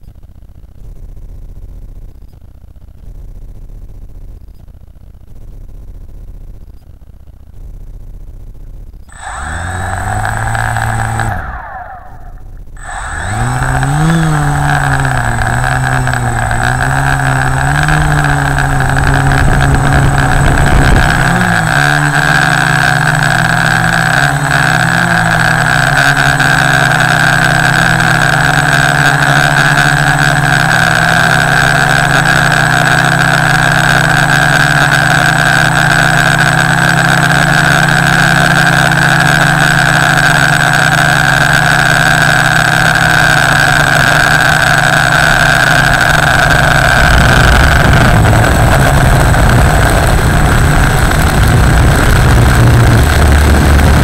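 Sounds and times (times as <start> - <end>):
drone motors and propellers: 9.0 - 54.0.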